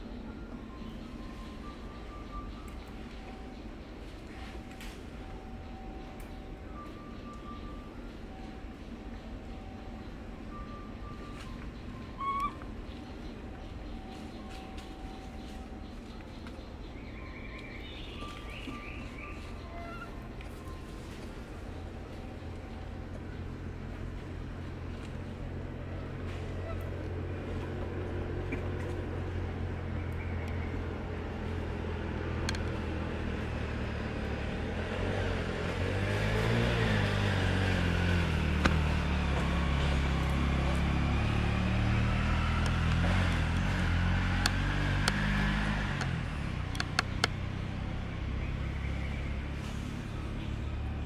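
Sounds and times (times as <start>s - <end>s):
vehicle engine running: 0.0s - 51.0s
sharp clicks: 46.0s - 47.4s.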